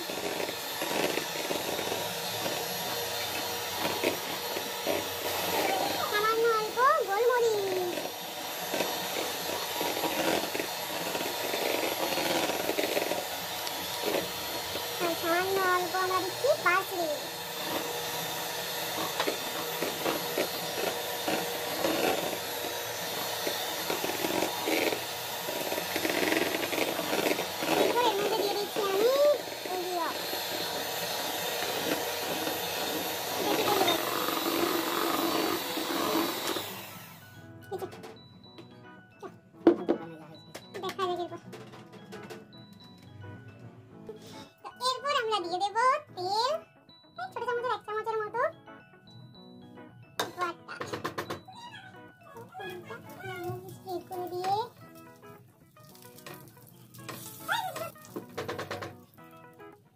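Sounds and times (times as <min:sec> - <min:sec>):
electric hand mixer whipping: 0:00.0 - 0:38.8, 0:40.4 - 0:43.4, 0:50.2 - 0:59.9.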